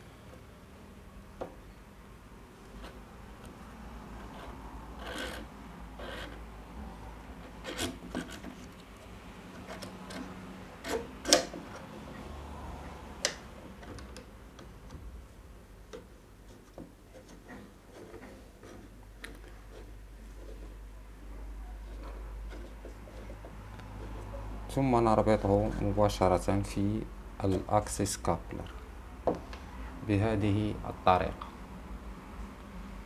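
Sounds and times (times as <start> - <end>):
metal rods scraping through plastic: 7.4 - 8.8.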